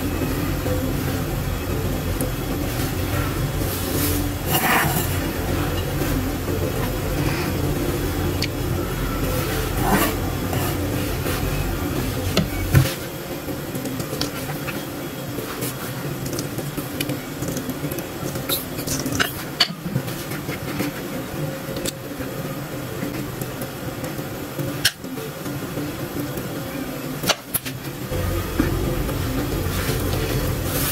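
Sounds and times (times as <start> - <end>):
low steady rumble: 27.9 - 30.9.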